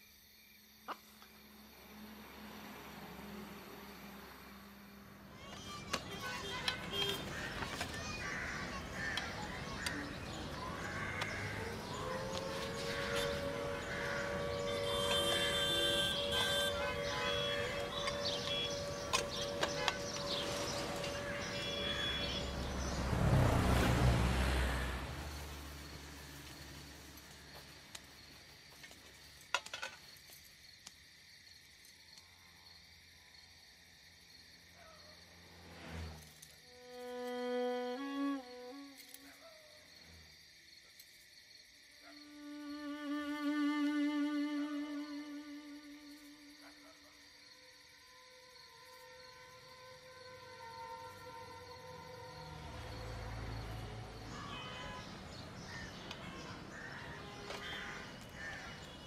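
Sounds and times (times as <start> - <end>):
insects chirring: 0.0 - 59.0
birds chirping: 5.3 - 27.7
held musical tones: 8.7 - 23.4.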